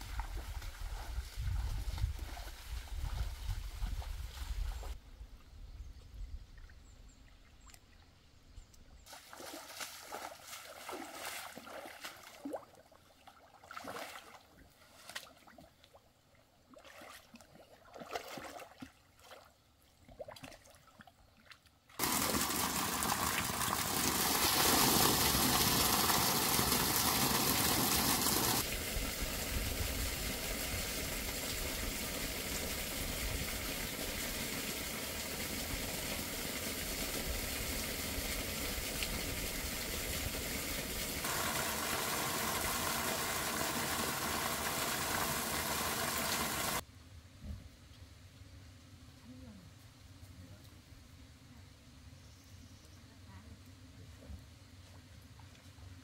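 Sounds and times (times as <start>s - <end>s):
water rushing hiss: 0.0s - 5.0s, 22.0s - 46.8s
shallow water splashing: 9.1s - 16.0s, 16.7s - 29.1s, 37.6s - 46.8s.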